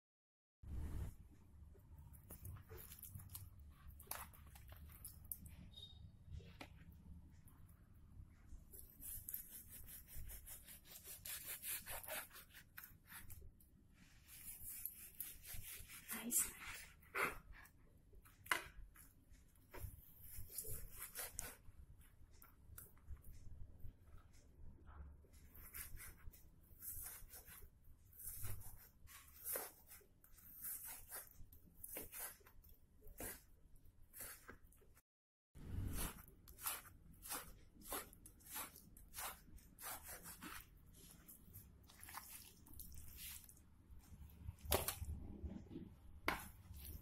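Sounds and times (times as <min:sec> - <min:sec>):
knife sawing through meat: 0:09.0 - 0:13.2, 0:36.0 - 0:40.6.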